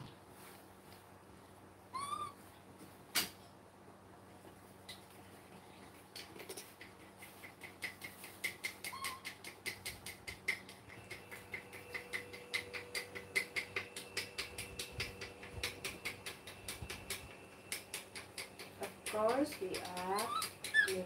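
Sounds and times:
utensils clicking and tapping: 0:06.1 - 0:21.0.

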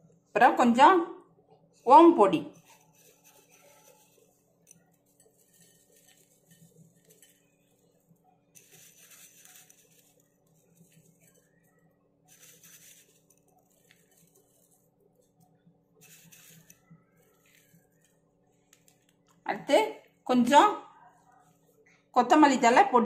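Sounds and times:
crisp rustling of crumbled snack: 0:02.5 - 0:19.4.

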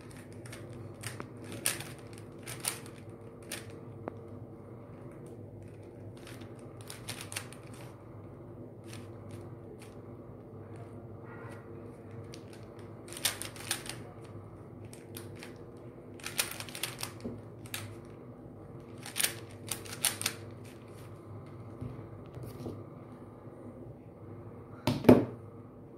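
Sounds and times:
puzzle cube clicking and rattling: 0:00.0 - 0:03.9, 0:04.9 - 0:08.0, 0:08.8 - 0:10.0, 0:12.1 - 0:18.1, 0:18.9 - 0:20.9
steady low hum: 0:00.0 - 0:25.9.

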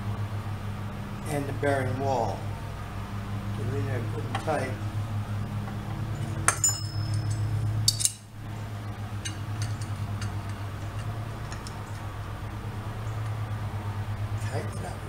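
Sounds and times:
steady low hum: 0:00.0 - 0:15.0
hand tools clinking on steel: 0:06.1 - 0:08.3, 0:09.2 - 0:11.9.

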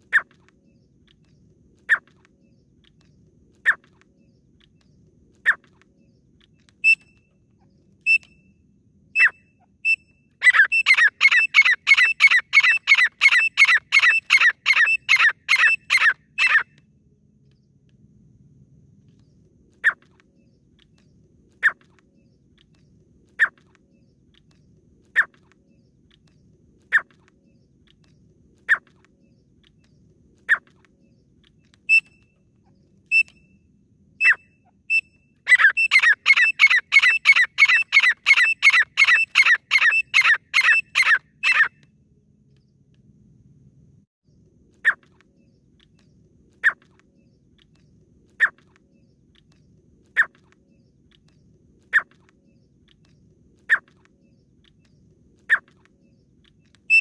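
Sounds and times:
francolin whistled calls: 0:06.8 - 0:07.3, 0:08.0 - 0:08.5, 0:09.2 - 0:16.7, 0:31.9 - 0:32.4, 0:33.1 - 0:33.6, 0:34.2 - 0:41.7.

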